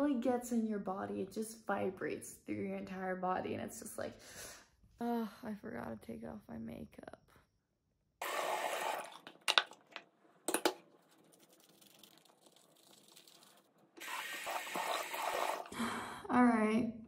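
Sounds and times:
water running from sink tap: 0:11.4 - 0:15.7.

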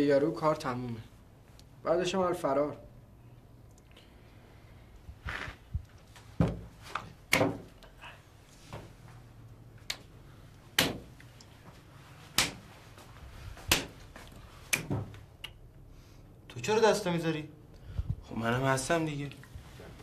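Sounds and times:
hands slapping together: 0:12.4 - 0:12.7, 0:13.7 - 0:14.0, 0:14.7 - 0:15.6.

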